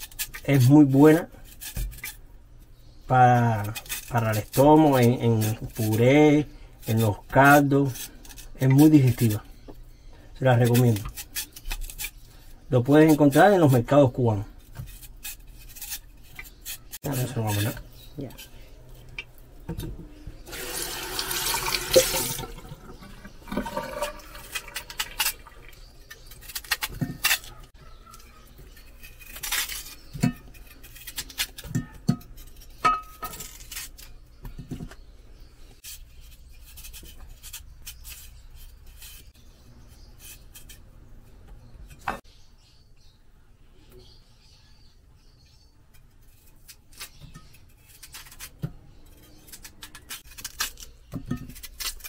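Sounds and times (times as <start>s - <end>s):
tap water running: 20.5s - 25.8s
knife knocking and clattering: 31.6s - 33.7s.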